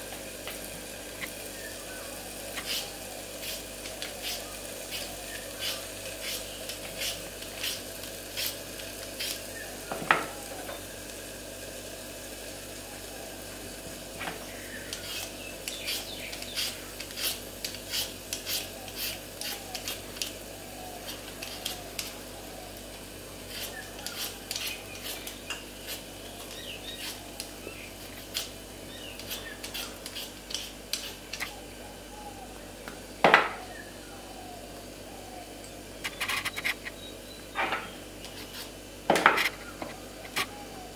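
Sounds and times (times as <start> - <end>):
peeler scraping potato: 2.6 - 8.6, 9.2 - 9.5, 14.9 - 20.3, 21.0 - 22.1, 23.5 - 31.6, 38.2 - 38.8.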